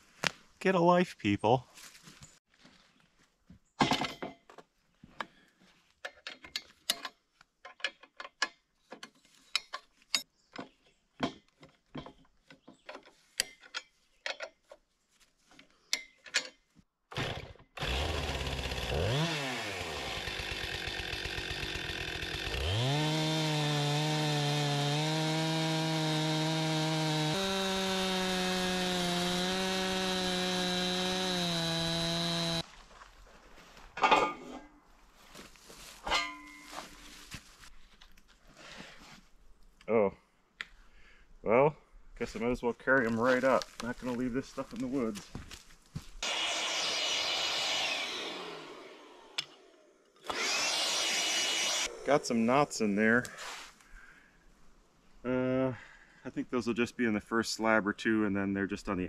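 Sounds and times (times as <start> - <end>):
chainsaw cutting log: 17.1 - 32.6, 46.2 - 53.4.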